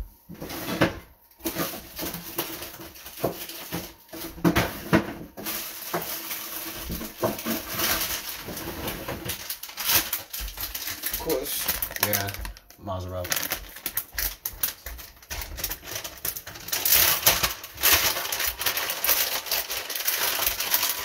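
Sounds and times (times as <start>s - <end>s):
rustling of kitchen items: 0.0s - 21.0s
knocks of kitchen items: 0.5s - 9.4s.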